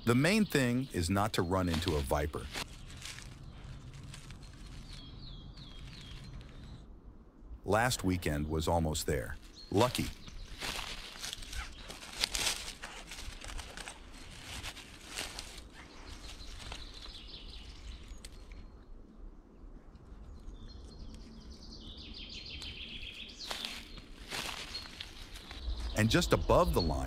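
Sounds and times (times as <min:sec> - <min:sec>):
bird singing: 0:00.0 - 0:06.9, 0:07.8 - 0:14.4, 0:15.3 - 0:27.0
dry leaves rustling: 0:01.0 - 0:06.7, 0:09.2 - 0:18.6, 0:22.6 - 0:27.0.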